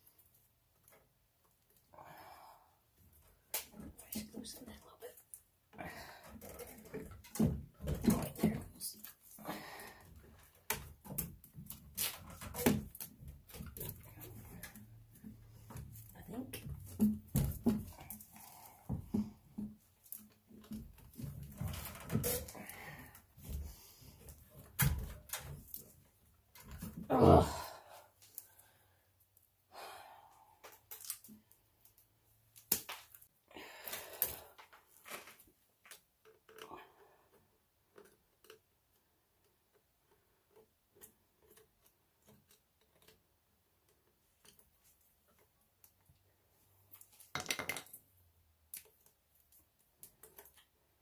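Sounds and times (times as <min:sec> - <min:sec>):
clicks and knocks on plastic fittings: 0:34.2 - 0:46.3, 0:46.9 - 0:50.9.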